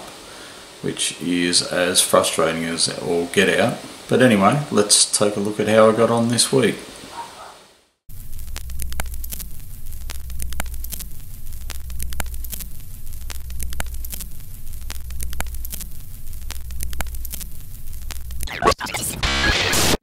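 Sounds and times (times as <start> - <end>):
film soundtrack crackle and hiss: 0.0 - 20.0
low hum: 8.1 - 18.5
sharp clicks: 8.1 - 18.7.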